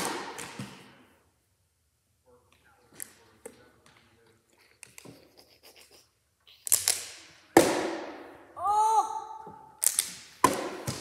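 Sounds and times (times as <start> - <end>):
person exclaiming: 8.6 - 9.4.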